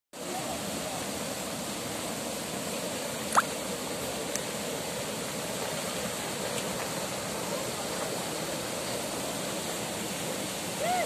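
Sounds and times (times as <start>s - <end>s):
stream rushing: 0.2s - 11.0s.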